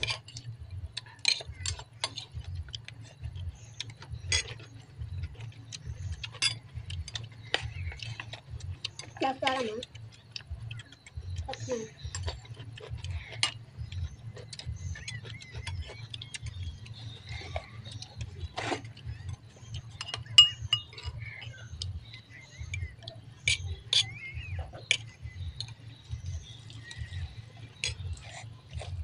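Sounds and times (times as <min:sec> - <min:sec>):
spoons clinking on ceramic bowls: 0:19.0 - 0:21.5, 0:22.6 - 0:25.2.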